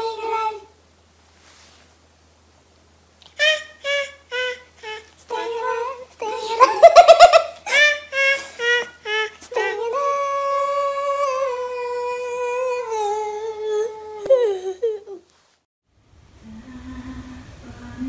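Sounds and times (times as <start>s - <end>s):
high-pitched voice singing: 0.0s - 0.8s, 3.3s - 7.0s, 7.7s - 14.9s.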